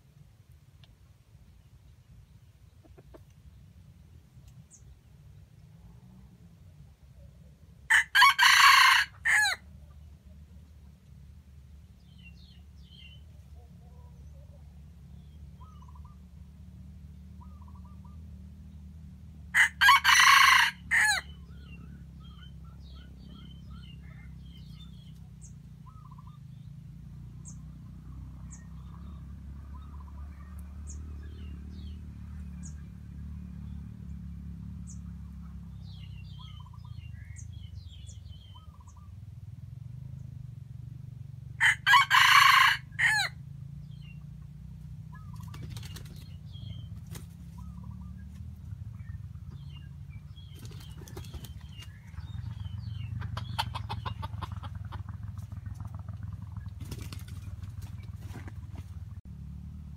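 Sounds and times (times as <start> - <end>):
rooster crowing: 7.9 - 9.6, 19.5 - 21.4, 41.6 - 43.4
faint small birds chirping: 45.1 - 54.7.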